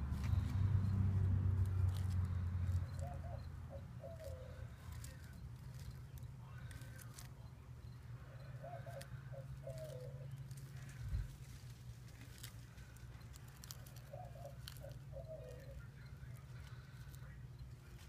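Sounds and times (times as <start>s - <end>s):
dove cooing: 1.8s - 5.9s, 8.0s - 11.5s, 12.3s - 17.0s.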